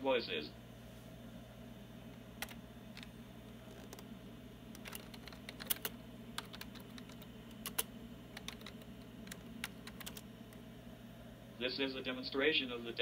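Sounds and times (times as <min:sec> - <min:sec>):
steady low hum: 0:00.0 - 0:13.0
keyboard typing clicks: 0:02.4 - 0:03.1, 0:04.7 - 0:10.6.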